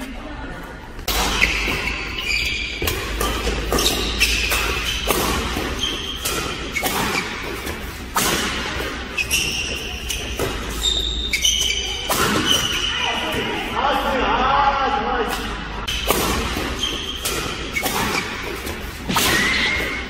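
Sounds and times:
court shoes squeaking: 0.9 - 13.8, 15.4 - 20.0
racket hitting shuttlecock: 1.0 - 10.8, 11.4 - 12.8, 15.8 - 20.0.

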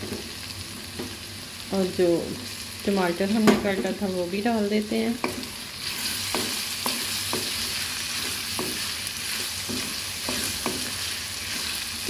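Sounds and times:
vegetables sizzling in oil: 0.0 - 12.0
spatula scraping metal wok: 5.2 - 12.0.

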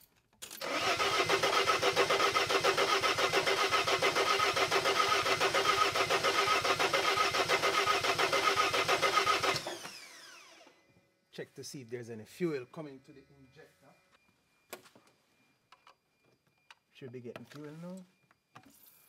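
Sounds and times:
diesel engine cranking: 0.6 - 10.2
starter motor winding down: 0.6 - 10.8.

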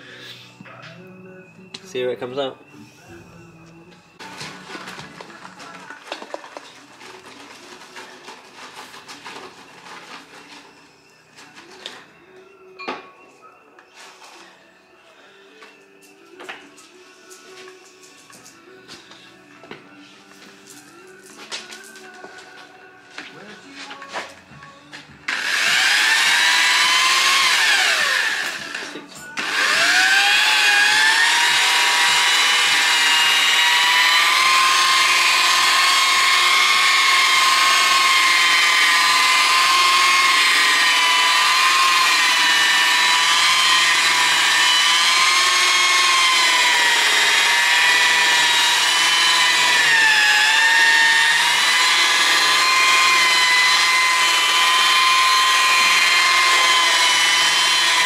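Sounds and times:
machine polisher motor whine: 25.3 - 58.0.

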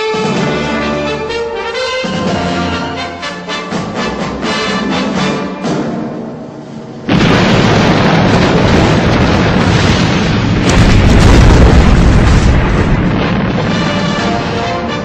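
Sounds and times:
loud explosion blast: 7.0 - 15.0
roar of fire and debris: 7.1 - 15.0.

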